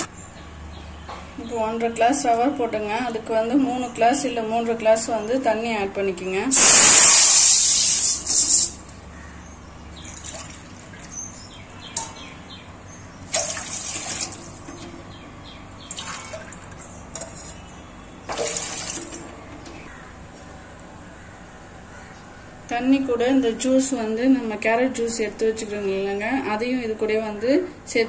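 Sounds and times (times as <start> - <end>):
water pouring into metal pan: 6.5 - 8.8, 13.3 - 14.6, 18.3 - 19.2.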